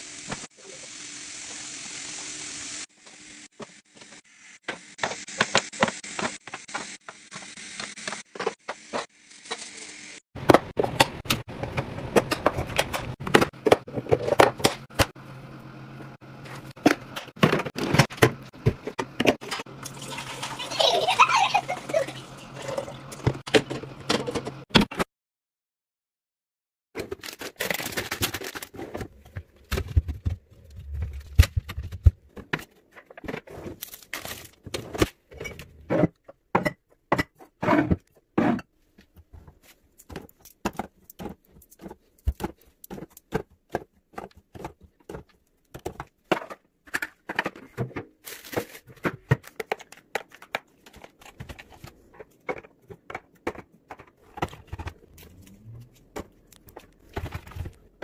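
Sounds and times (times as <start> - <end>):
packaging crinkling and tearing: 27.0 - 28.9, 33.7 - 34.6, 48.2 - 51.9
plastic bins clicking and knocking: 40.1 - 55.3.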